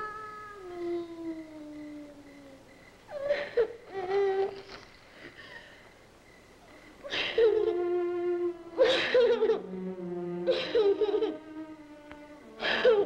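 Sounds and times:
little girl laughing: 7.1 - 7.8, 8.8 - 9.6, 10.5 - 11.4
low music: 7.2 - 13.0.

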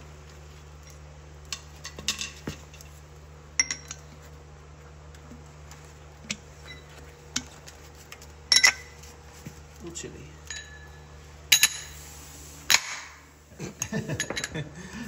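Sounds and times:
metal bearing race clinking: 3.6 - 4.1, 8.5 - 9.0, 10.4 - 12.0, 13.8 - 14.6.

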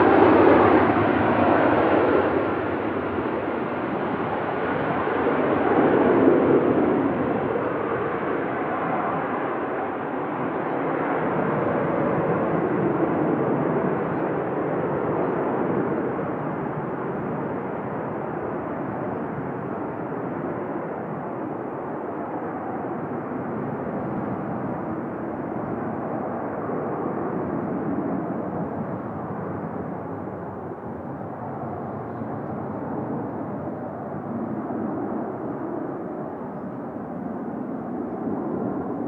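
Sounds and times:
jet engine rumble: 0.0 - 39.0.

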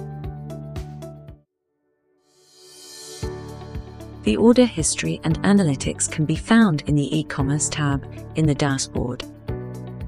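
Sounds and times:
background music with steady beat: 0.0 - 1.4, 2.3 - 10.0.

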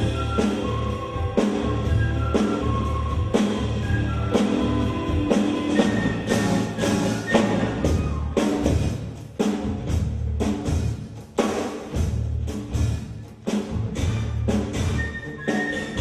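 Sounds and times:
live band music: 0.0 - 16.0
deep bass: 9.6 - 11.0.

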